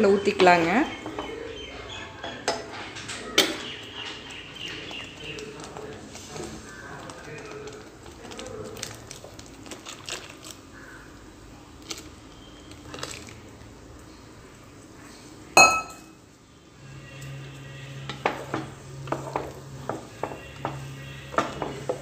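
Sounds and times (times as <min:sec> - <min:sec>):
low steady hum: 0:12.4 - 0:18.2
spoons clinking against metal pot: 0:15.6 - 0:16.1.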